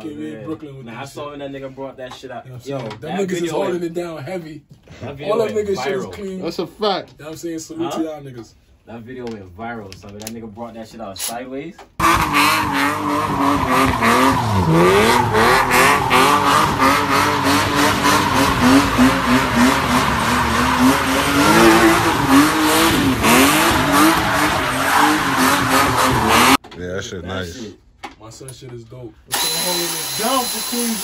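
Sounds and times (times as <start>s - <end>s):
car engine at high revs: 12.0s - 26.6s
tyres squealing: 12.0s - 26.6s.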